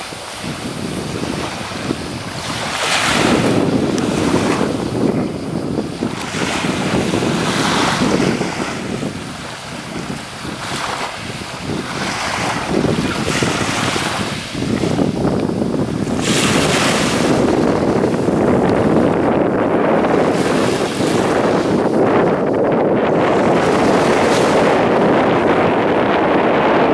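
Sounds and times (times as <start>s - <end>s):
waves washing onto pebbles: 0.0s - 19.1s
wind buffeting microphone: 0.0s - 26.9s.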